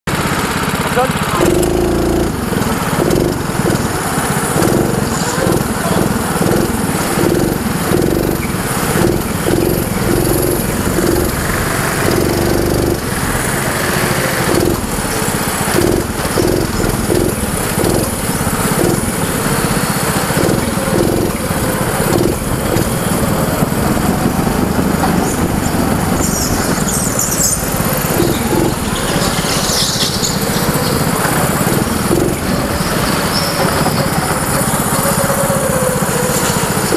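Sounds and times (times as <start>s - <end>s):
go-kart engine accelerating: 0.1s - 36.9s
tyre squeals: 25.2s - 36.9s.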